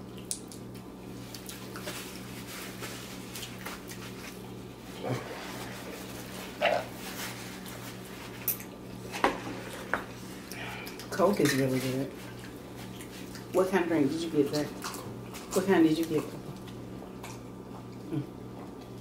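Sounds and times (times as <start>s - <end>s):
person chewing food: 0.0s - 11.1s, 12.2s - 13.5s, 16.4s - 19.0s
low electrical hum: 0.0s - 19.0s.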